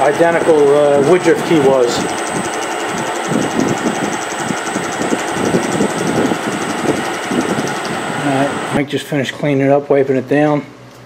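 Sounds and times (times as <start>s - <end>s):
milling machine cutting metal: 0.0s - 8.8s.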